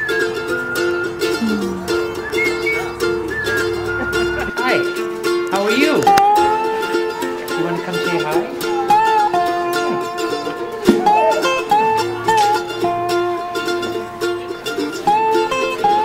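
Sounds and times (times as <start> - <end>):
steady held notes: 0.0 - 7.6
plucked string melody: 0.0 - 16.0.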